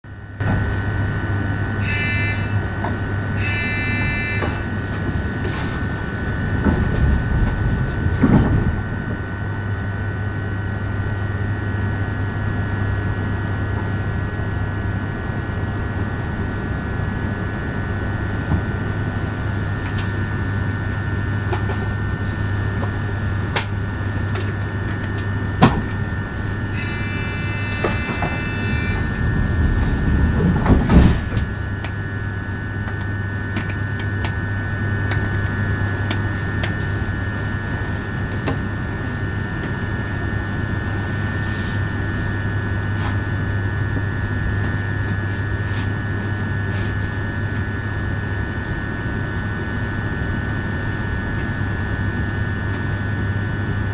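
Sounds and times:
steady electrical hum: 0.1s - 53.9s
short electronic beeps: 1.8s - 2.6s, 3.4s - 4.6s.

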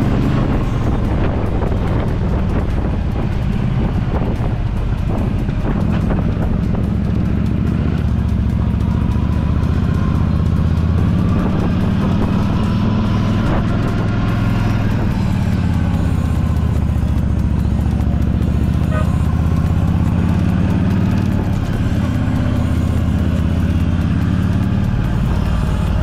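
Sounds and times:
motorcycle engine running: 0.0s - 26.0s.

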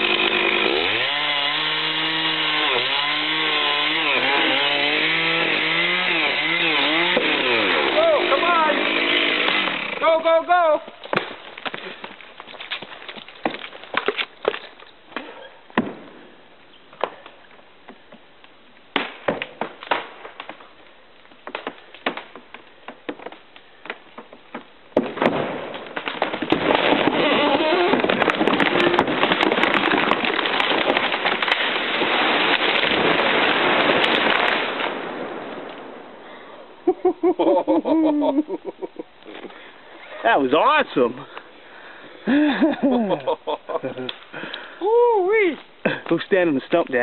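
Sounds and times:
tree crashing down: 0.0s - 16.2s, 21.3s - 36.2s
wood splitting snaps and pops: 1.7s - 10.0s, 10.8s - 16.1s, 16.9s - 35.9s, 44.0s - 44.7s.

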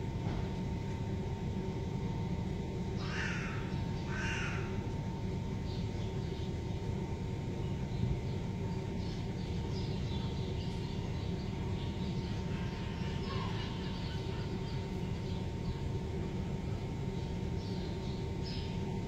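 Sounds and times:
low rumble of traffic: 0.0s - 19.0s.

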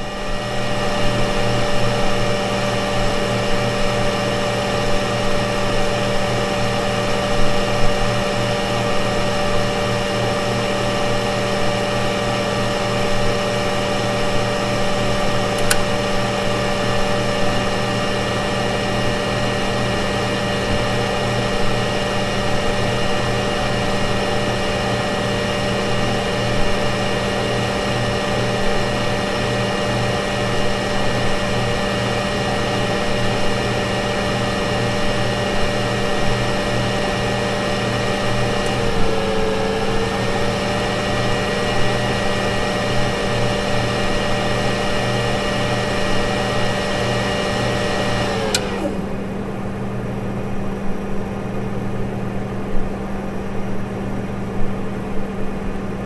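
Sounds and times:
server fan noise: 0.0s - 56.0s
relay click: 15.5s - 16.0s, 48.3s - 49.0s.

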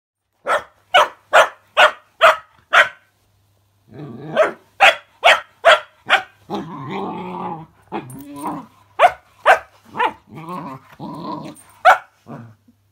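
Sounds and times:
puppy barking: 0.4s - 3.1s, 4.3s - 6.4s, 9.0s - 10.2s, 11.8s - 12.2s
puppy growling: 3.9s - 4.6s, 6.4s - 9.1s, 9.8s - 12.7s.

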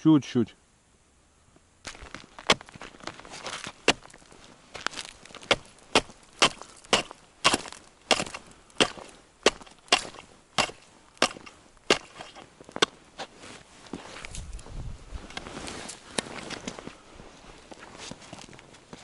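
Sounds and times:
wooden pole tapping on ice: 4.8s - 12.9s.

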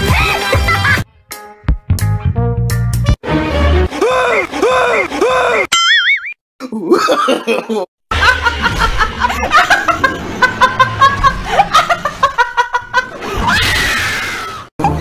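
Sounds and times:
woman laughing hard: 6.8s - 13.4s.

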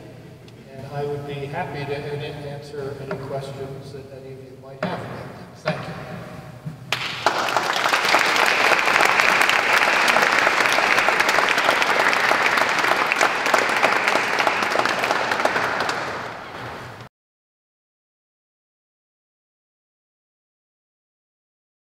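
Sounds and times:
audience applauding: 6.9s - 17.1s.

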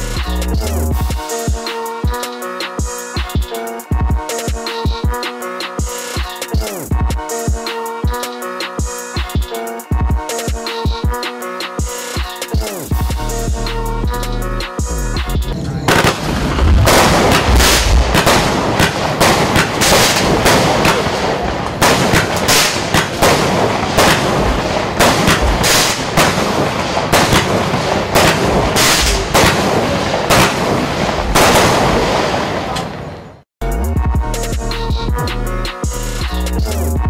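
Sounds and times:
fireworks crackling: 15.6s - 33.4s
fireworks shots bursting: 15.8s - 33.3s.

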